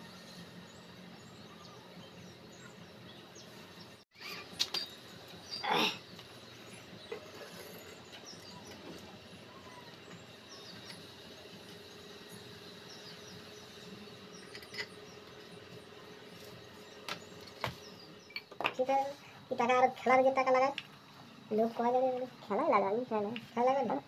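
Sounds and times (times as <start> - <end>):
distant bird chirps: 0.0 - 18.5.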